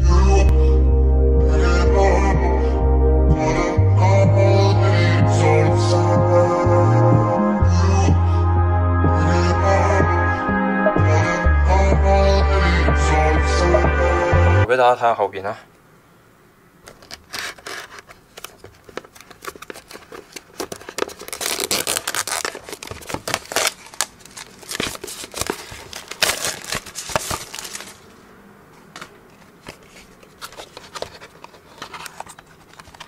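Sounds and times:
plastic wrap crinkling and tearing: 17.0 - 28.1.

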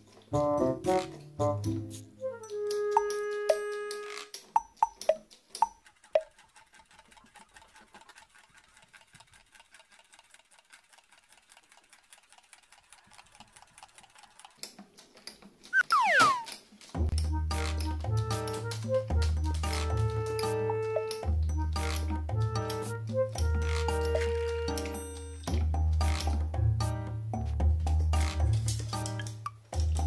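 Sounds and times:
pump bottle clicking and spritzing: 2.7 - 9.5
falling whistle-like tone: 15.8 - 16.5.

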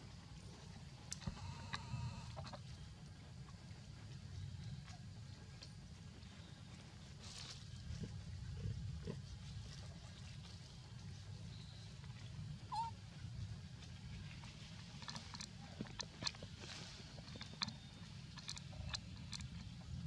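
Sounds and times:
monkey squeak: 12.7 - 12.9.

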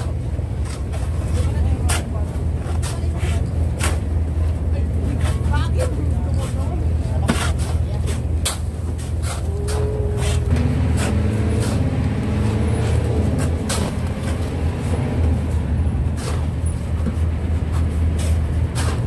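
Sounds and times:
boat engine humming: 1.4 - 18.8
shovels scraping crushed ice: 11.0 - 11.9.

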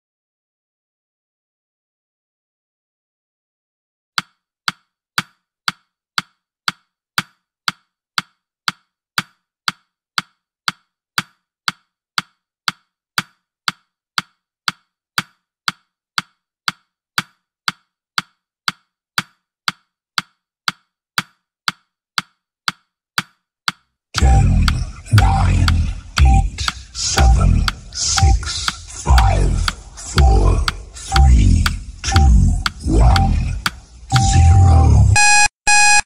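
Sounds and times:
countdown timer ticking clicks: 23.7 - 36.0.

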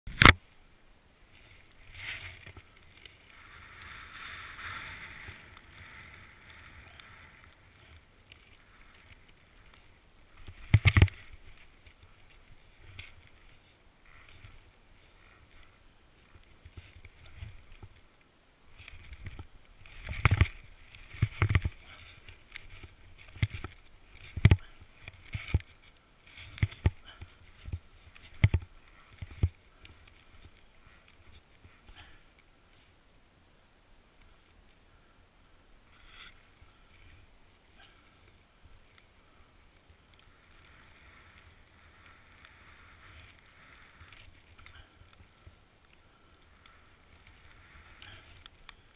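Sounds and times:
snowboard hissing through powder: 3.4 - 7.4.

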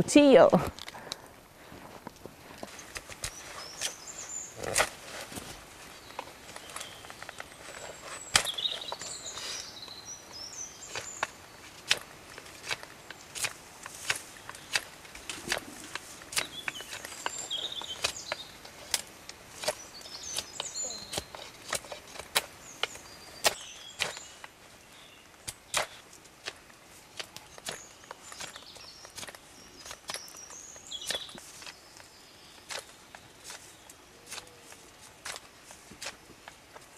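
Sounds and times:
knife shaving wood: 10.9 - 24.6.

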